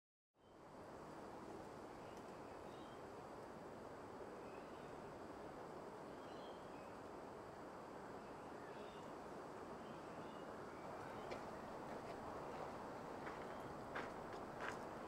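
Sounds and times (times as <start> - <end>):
low background hiss: 0.4 - 15.0
faint bird chirps: 6.1 - 7.0.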